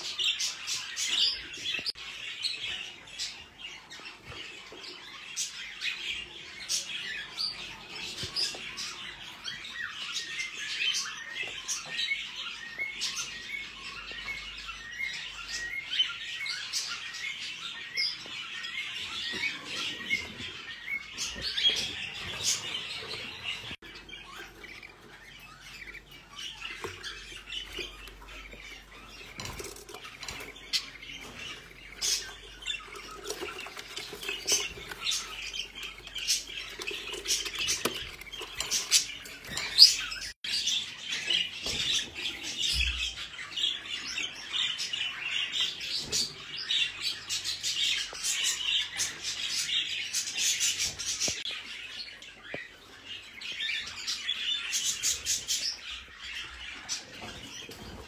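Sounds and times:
budgerigars chirping and chattering: 0.0 - 58.0.

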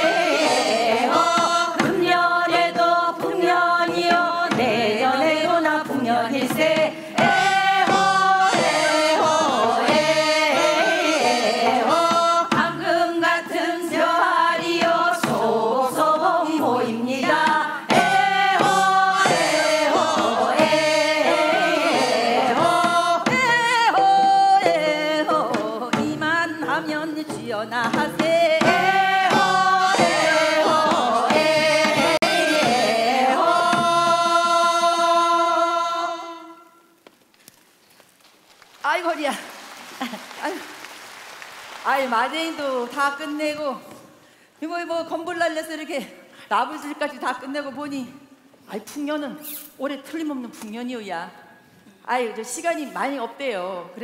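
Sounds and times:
people singing folk song: 0.0 - 36.9
steady beat: 6.5 - 12.8, 17.2 - 23.7, 28.0 - 34.2.

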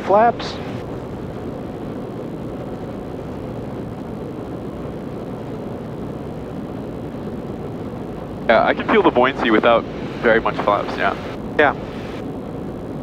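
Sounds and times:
light aircraft engine drone: 0.0 - 13.0.

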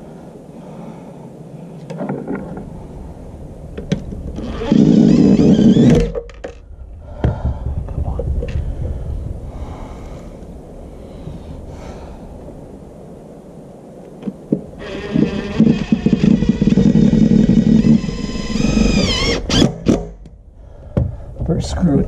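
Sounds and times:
impact driver motor whining: 4.4 - 6.1, 14.8 - 20.0.

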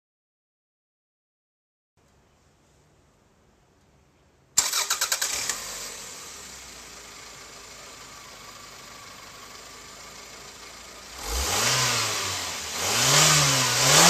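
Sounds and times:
starter motor cranking: 4.6 - 5.6
car engine idling: 4.6 - 12.9.

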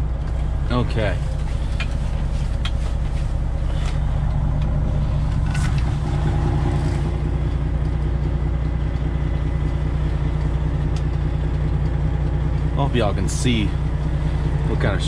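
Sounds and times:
diesel truck engine running: 0.0 - 15.0.

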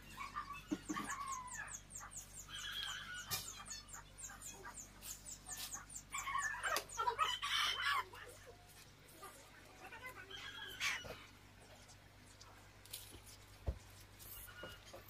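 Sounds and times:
chickens clucking: 0.0 - 12.6.

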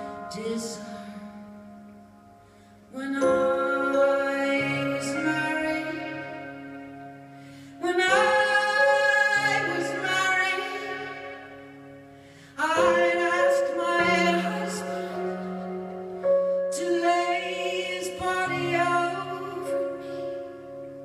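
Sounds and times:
woman singing a slow ballad: 0.0 - 2.1, 2.9 - 20.8
electric keyboard chords: 0.0 - 21.0.

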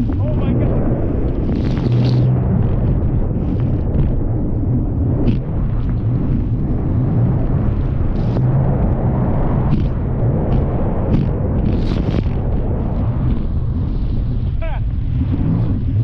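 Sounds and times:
wind and water rushing: 0.0 - 16.0
hull hitting chop: 9.6 - 12.5.

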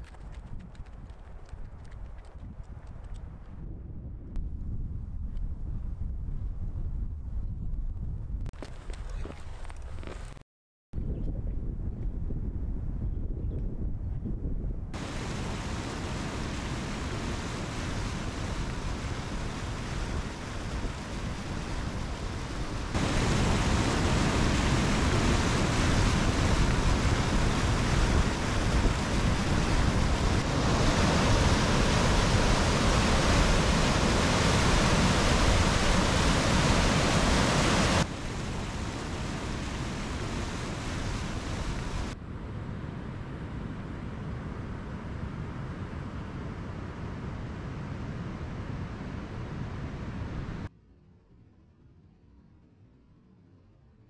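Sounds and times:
creek rushing over rocks: 15.0 - 42.2.

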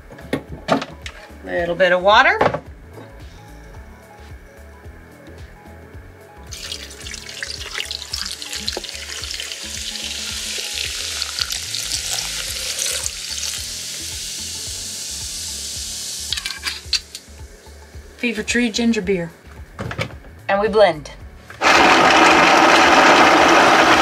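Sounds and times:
fizzy drink pouring into blender jar: 6.5 - 14.0.

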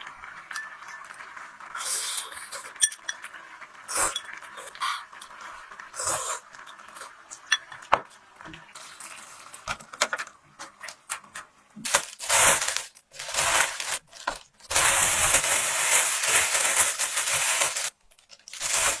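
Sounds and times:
plastic bag crinkling: 11.8 - 19.0.

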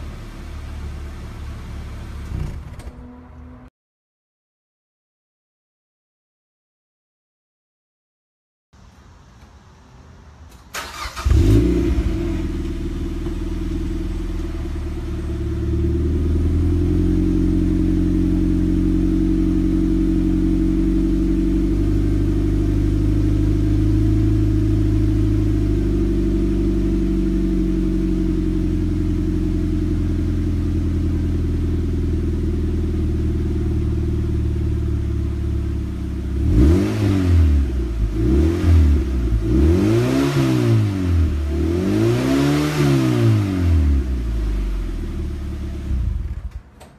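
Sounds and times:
car engine idling: 0.0 - 2.8, 10.2 - 36.7, 44.0 - 46.6
engine revving: 10.8 - 30.5, 32.2 - 46.6.

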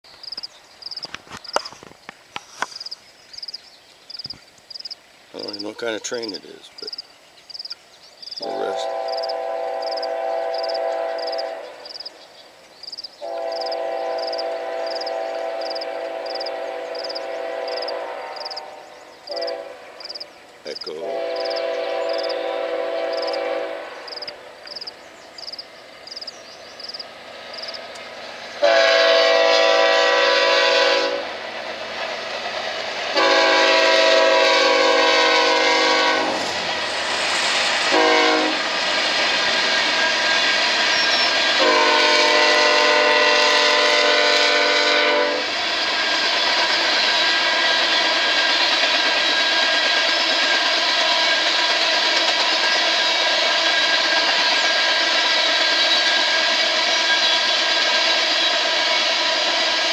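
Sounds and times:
train air horn blasts: 8.4 - 12.0, 13.2 - 20.0, 20.8 - 24.4, 28.6 - 31.3, 33.2 - 36.6, 37.9 - 38.7, 41.6 - 45.5.

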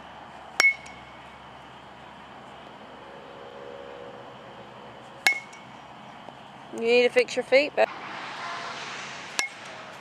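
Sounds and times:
metal bat pinging a ball: 0.6 - 1.1, 5.2 - 5.7, 9.3 - 10.0.

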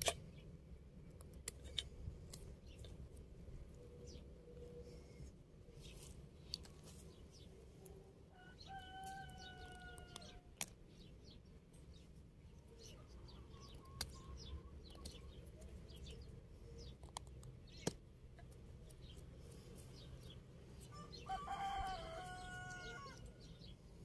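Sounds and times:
small birds chirping: 0.2 - 24.0
distant rooster crowing: 8.3 - 10.5, 20.9 - 23.5.

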